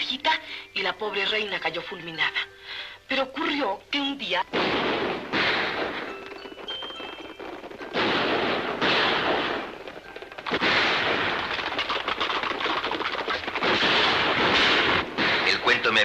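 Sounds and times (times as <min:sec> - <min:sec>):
gunfire: 0:04.5 - 0:16.0.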